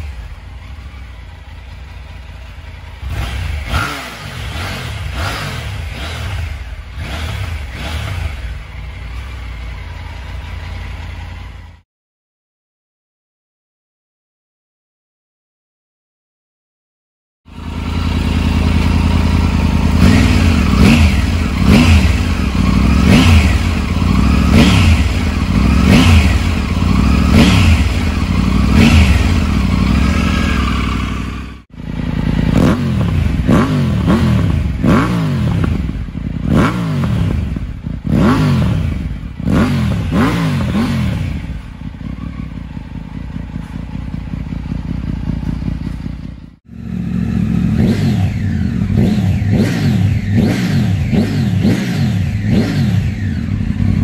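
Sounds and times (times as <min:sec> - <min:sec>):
motorcycle engine idling: 0:00.0 - 0:11.8, 0:17.5 - 0:54.0
motorcycle engine revving: 0:00.0 - 0:11.8, 0:17.5 - 0:54.0.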